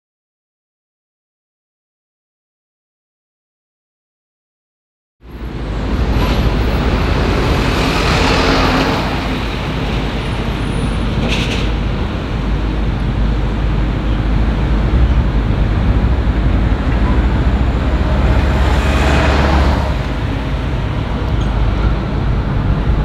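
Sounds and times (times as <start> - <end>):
road traffic rumble: 5.2 - 23.0
vehicle passing: 5.3 - 11.1, 11.7 - 23.0.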